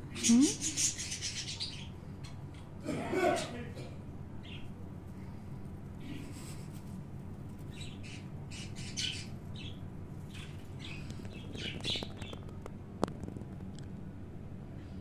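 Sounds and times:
steady low hum: 0.0s - 15.0s
budgie chirping and squawking: 0.1s - 2.4s, 7.7s - 12.5s.

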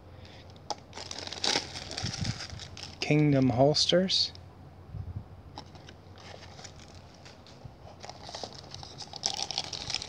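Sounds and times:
plastic bag crinkling: 0.7s - 3.2s, 5.7s - 10.0s.

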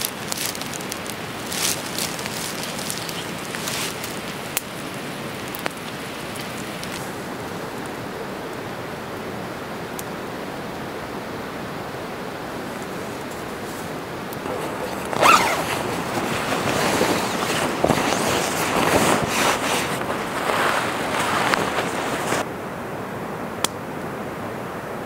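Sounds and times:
sleeping bag fabric rustling: 0.0s - 4.3s, 13.6s - 22.4s
background hiss: 0.0s - 24.9s.

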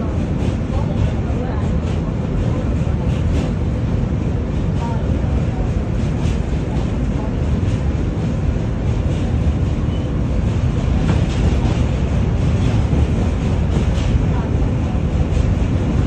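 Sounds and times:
train rumbling on rails: 0.0s - 16.0s.

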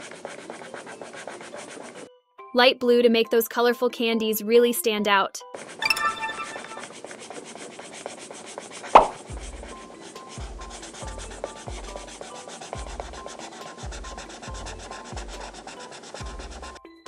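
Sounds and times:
marker rubbing on paper: 0.0s - 2.1s, 6.8s - 16.8s
sharp tap: 9.0s - 9.2s.

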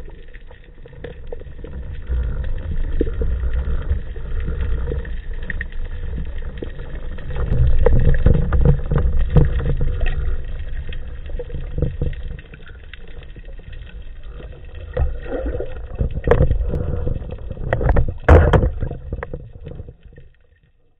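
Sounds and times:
underwater rumble of moving water: 0.0s - 20.9s
clicks and knocks: 17.6s - 20.0s.

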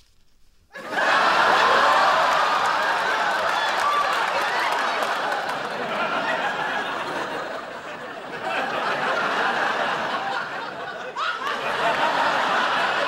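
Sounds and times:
crowd whooping: 0.8s - 7.6s
studio audience laughing: 0.8s - 13.0s.

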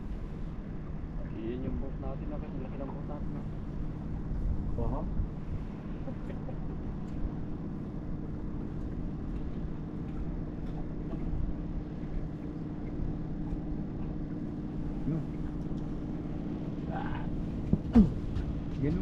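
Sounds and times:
boat engine humming: 0.0s - 19.0s
wind rumbling on microphone: 3.1s - 19.0s.

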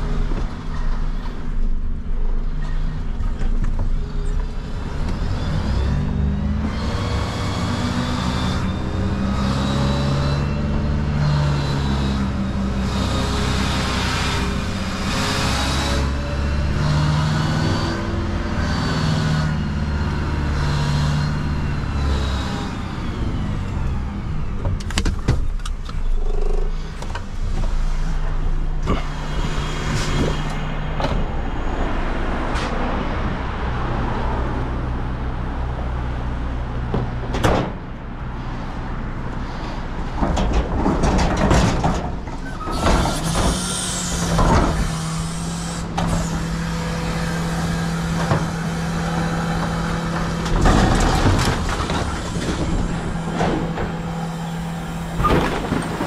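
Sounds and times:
truck engine and hydraulic hum: 0.0s - 56.0s.

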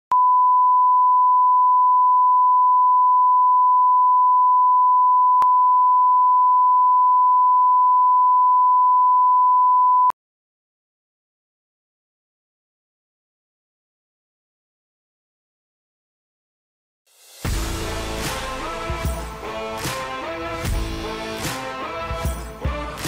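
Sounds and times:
steady line-up tone beep: 0.1s - 10.1s.

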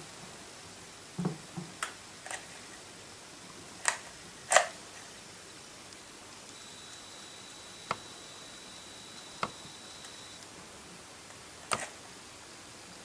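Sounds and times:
faint steady hiss: 0.0s - 13.0s
faint high whine: 5.0s - 13.0s.

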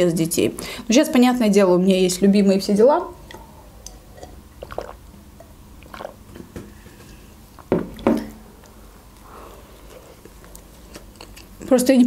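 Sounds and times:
wet mouth clicks sipping: 3.2s - 5.0s, 5.8s - 6.2s
loud mouth sounds biting: 3.3s - 5.0s, 5.8s - 6.2s.

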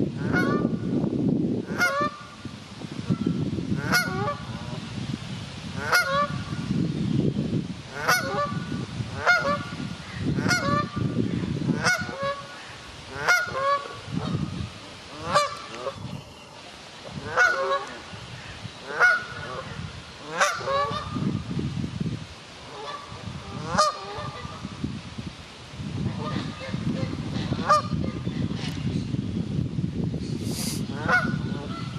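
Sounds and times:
goose honking: 0.2s - 0.7s, 1.7s - 2.2s, 3.8s - 4.4s, 5.8s - 6.5s, 7.9s - 9.8s, 10.4s - 11.0s, 11.8s - 12.5s, 13.1s - 14.4s, 15.1s - 16.0s, 17.2s - 18.0s, 18.9s - 21.2s, 22.7s - 24.6s, 30.9s - 31.9s.

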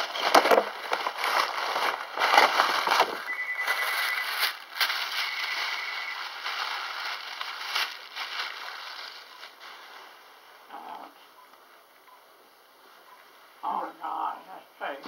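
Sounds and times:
hands rustling in a bag: 0.0s - 10.7s.

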